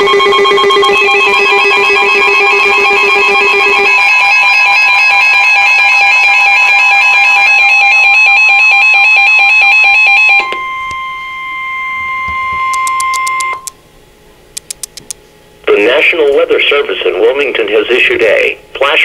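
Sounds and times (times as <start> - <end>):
pulsing multi-tone alarm: 0.0 - 13.7
steady warning tone: 0.0 - 13.8
faint clicks: 14.6 - 15.2.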